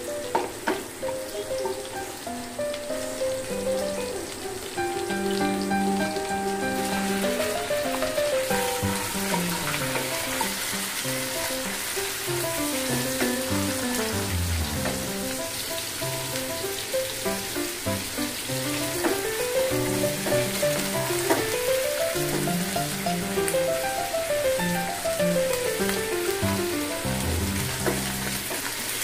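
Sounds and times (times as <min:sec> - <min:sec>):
chicken sizzling in a pan: 0:00.0 - 0:29.0
background music: 0:12.8 - 0:15.3.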